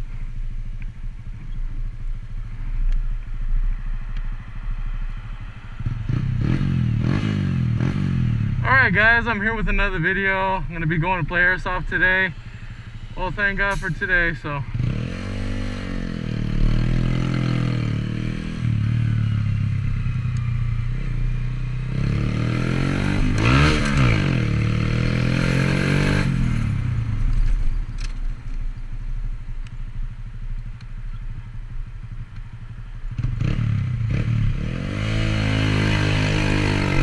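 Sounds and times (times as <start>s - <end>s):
motorcycle engine running: 0.0s - 13.7s, 14.3s - 37.0s.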